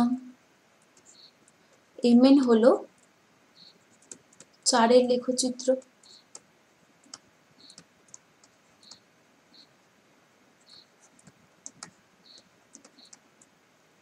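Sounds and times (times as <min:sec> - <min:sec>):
stylus tapping on tablet screen: 0:10.7 - 0:13.5.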